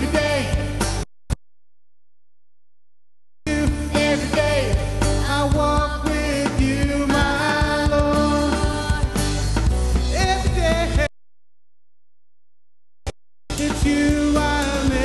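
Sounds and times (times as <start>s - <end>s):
worship band playing rock music: 0.0s - 1.0s, 3.5s - 11.1s, 13.5s - 15.0s.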